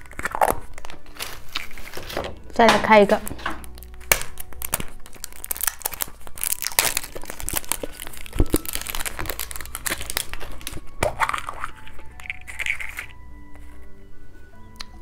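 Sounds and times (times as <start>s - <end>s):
plastic snapping: 0.0s - 13.1s
wrapper crinkling: 0.0s - 13.2s
plastic capsule clicking and cracking: 2.3s - 13.2s.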